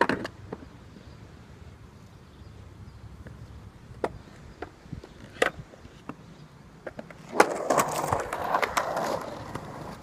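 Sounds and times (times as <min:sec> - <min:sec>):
skateboard clicks and knocks: 0:00.0 - 0:00.7, 0:03.2 - 0:10.0
wheels rolling on concrete: 0:00.0 - 0:01.2, 0:03.0 - 0:10.0.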